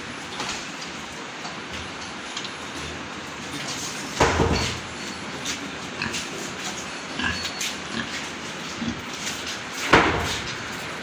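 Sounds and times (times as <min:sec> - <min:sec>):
pigs grunting: 0:05.8 - 0:09.4.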